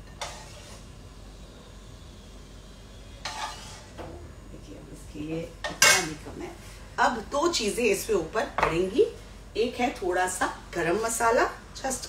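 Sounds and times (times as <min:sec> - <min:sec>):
metal spoon scraping a pan: 0:00.0 - 0:00.9, 0:03.2 - 0:04.0
low kitchen background: 0:00.0 - 0:12.0.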